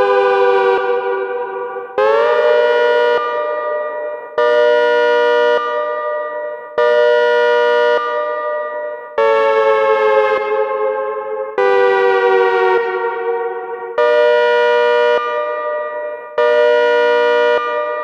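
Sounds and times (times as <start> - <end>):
two-tone siren: 0.0 - 18.0.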